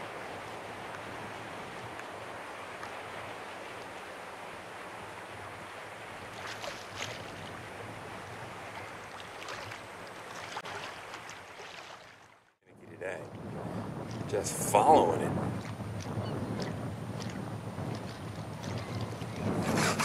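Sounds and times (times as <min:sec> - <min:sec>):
hiss of water and wind: 0:00.0 - 0:20.0
seawater sloshing around legs: 0:06.2 - 0:07.7, 0:08.7 - 0:12.5.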